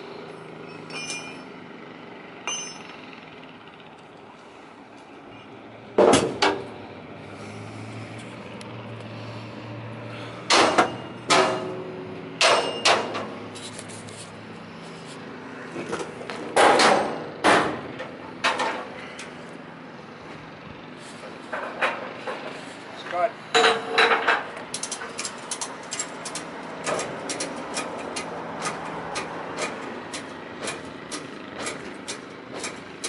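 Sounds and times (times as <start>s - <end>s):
metal clanks and bangs: 0.7s - 1.5s, 2.4s - 3.0s, 6.0s - 6.7s, 10.4s - 13.4s, 15.8s - 19.3s, 23.5s - 33.0s.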